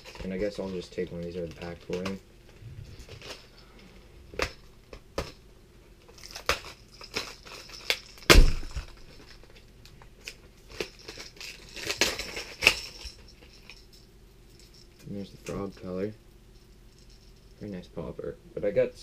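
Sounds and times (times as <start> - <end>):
heavy thump: 8.3 - 8.9.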